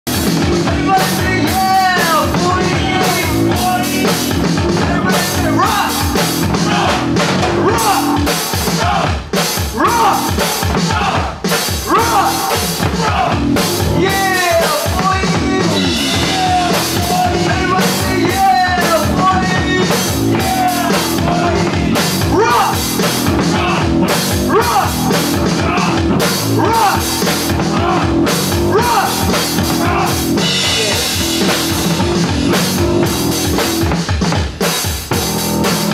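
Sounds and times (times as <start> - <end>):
rock band playing loud: 0.0 - 35.9
drum beat: 0.1 - 35.9
vocalist shouting into microphone: 4.8 - 7.0, 7.6 - 13.4, 14.0 - 22.9, 23.5 - 31.1.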